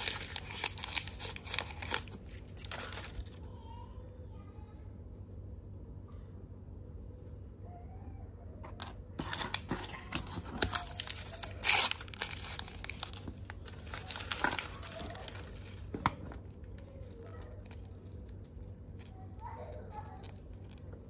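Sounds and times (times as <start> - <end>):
plastic wrapper crinkling and tearing: 0.0 - 3.5, 9.2 - 21.0.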